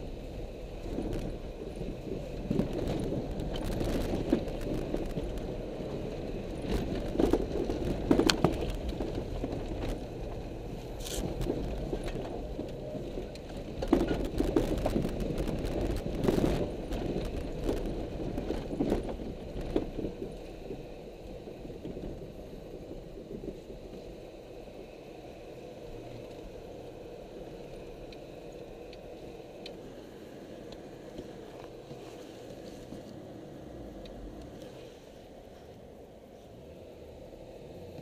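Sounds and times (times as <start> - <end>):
gravel striking car body: 0.8 - 20.8.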